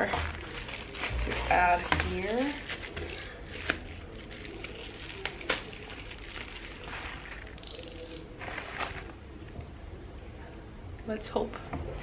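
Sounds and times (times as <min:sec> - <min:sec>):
plastic wrap crinkling: 0:00.0 - 0:09.4.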